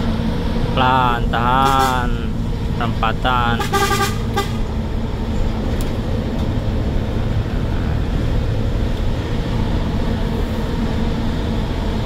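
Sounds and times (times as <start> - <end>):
road noise: 0.0 - 12.0
truck diesel engine running: 0.0 - 12.0
truck horn toot: 1.3 - 2.4, 3.2 - 4.8.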